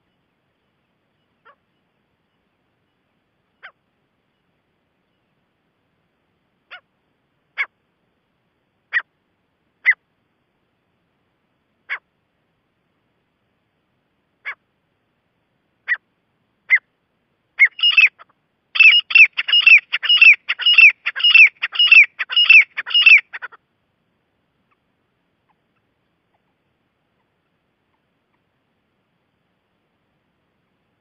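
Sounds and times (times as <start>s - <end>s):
francolin calling: 0.0s - 5.4s, 6.6s - 6.9s, 14.4s - 14.7s, 15.8s - 16.9s, 17.6s - 23.6s.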